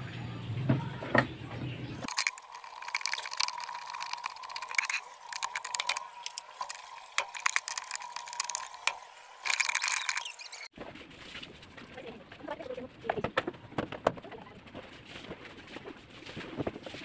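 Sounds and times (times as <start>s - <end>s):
screwdriver metal clicks and rattles: 2.1s - 10.3s.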